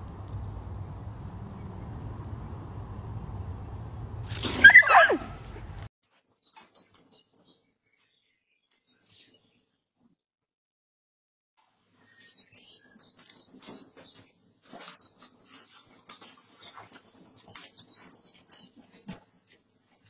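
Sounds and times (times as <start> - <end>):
small birds chirping: 0.0 - 9.7.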